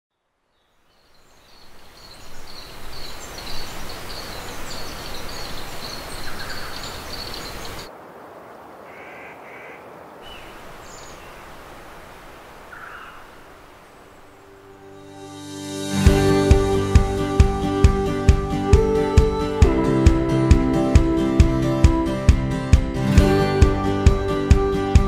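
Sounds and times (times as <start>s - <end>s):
bird calls: 0.6s - 7.9s, 8.7s - 14.9s.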